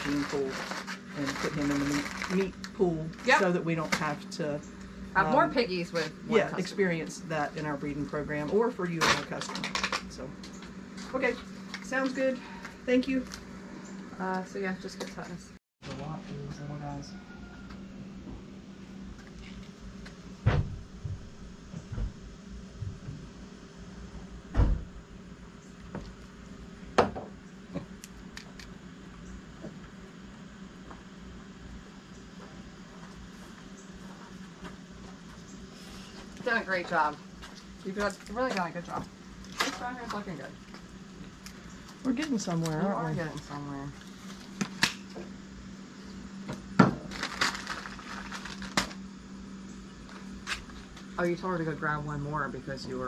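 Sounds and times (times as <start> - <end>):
steady low hum: 0.0 - 53.0
dull thump: 20.4 - 22.2.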